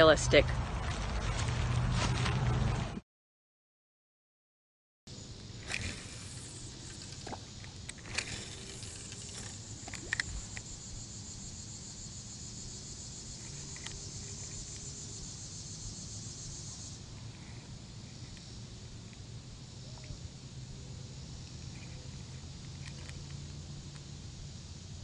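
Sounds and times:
high-pitched insect chorus: 5.1 - 25.0.

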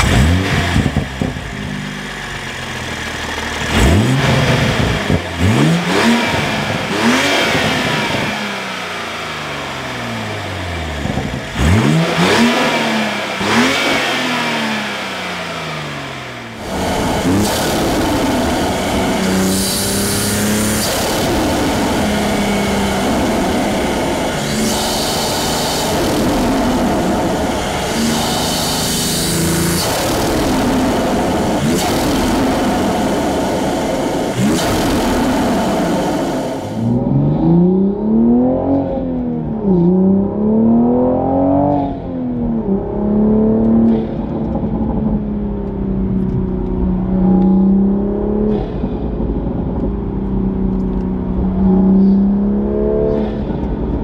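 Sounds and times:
car engine revving: 0.0 - 54.0
car engine running steadily: 0.0 - 54.0
bursts of hiss: 19.2 - 22.6.

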